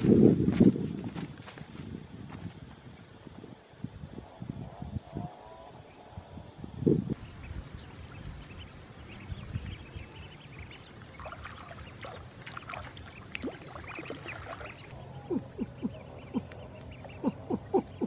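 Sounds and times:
ducklings peeping: 0:07.1 - 0:18.0
water splashing and lapping: 0:07.8 - 0:15.0.

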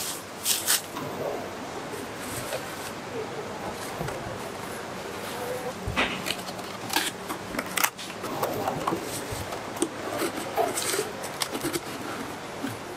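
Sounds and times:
cardboard boxes being folded: 0:00.0 - 0:00.9, 0:06.2 - 0:12.9.

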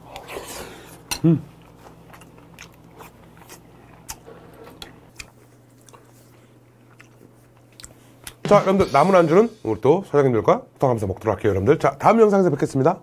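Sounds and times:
man chewing food: 0:00.0 - 0:08.4
man humming mm: 0:01.1 - 0:01.5.

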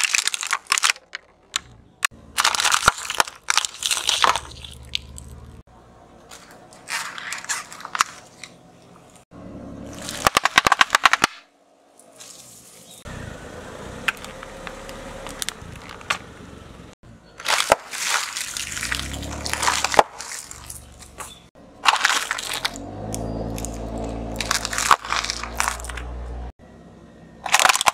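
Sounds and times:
tyre crushing plastic objects: 0:00.0 - 0:01.7, 0:02.4 - 0:05.4, 0:06.3 - 0:09.1, 0:09.9 - 0:11.4, 0:17.4 - 0:22.9, 0:23.6 - 0:26.2, 0:27.4 - 0:27.9
loud sharp cracks: 0:10.1 - 0:11.5.

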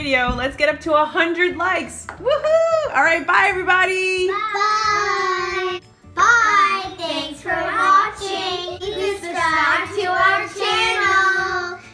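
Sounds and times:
girls singing together: 0:06.9 - 0:11.9.

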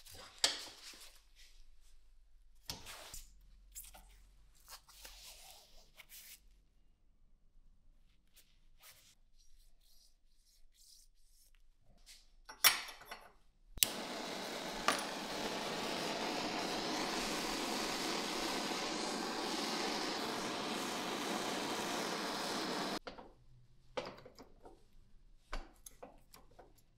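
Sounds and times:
butane torch flame hissing: 0:13.8 - 0:23.0
torch igniter clicks: 0:13.8 - 0:23.0.

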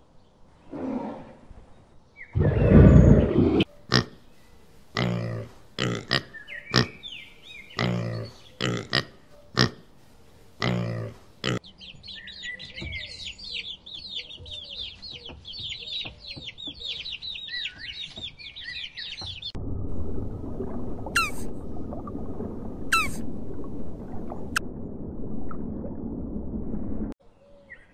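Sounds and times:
chicks cheeping: 0:11.6 - 0:19.6.

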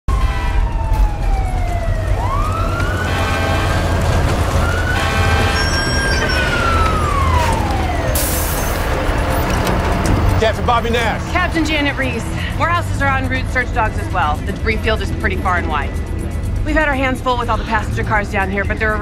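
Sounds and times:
fire engine siren wailing: 0:00.1 - 0:12.6
fire truck engines rumbling: 0:00.1 - 0:19.0.

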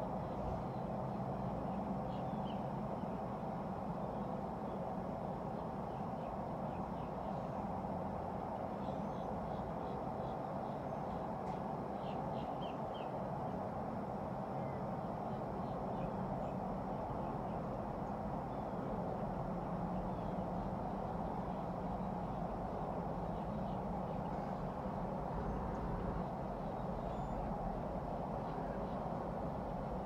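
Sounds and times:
outdoor background noise: 0:00.0 - 0:30.0
faint high bird chirps: 0:26.6 - 0:27.6.

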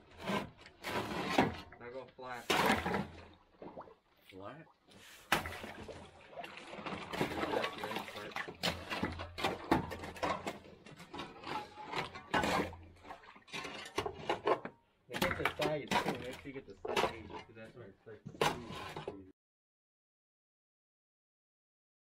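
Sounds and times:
water sloshing and splashing: 0:00.0 - 0:19.2
ice chunks clinking on metal: 0:07.0 - 0:17.6.

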